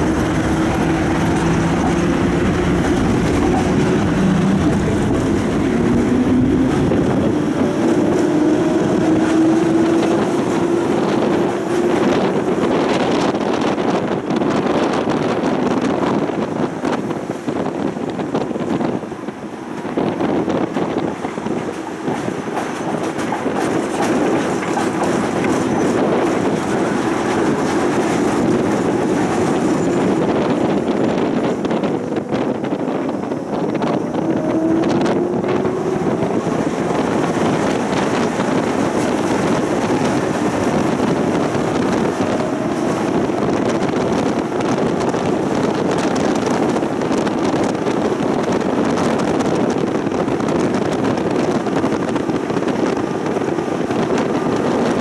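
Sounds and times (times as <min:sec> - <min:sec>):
rising whine: 0:00.0 - 0:12.9, 0:28.3 - 0:46.5
tram wheels running on rails: 0:00.0 - 0:55.0.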